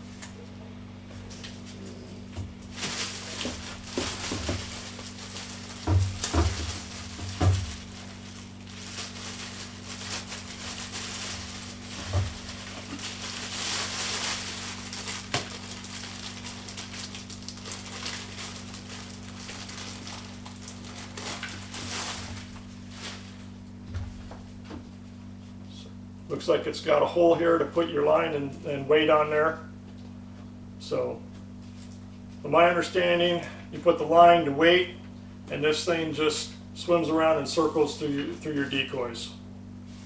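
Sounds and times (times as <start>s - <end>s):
plastic wrapping crinkling: 2.6s - 23.7s
dull handling bumps: 5.7s - 7.9s.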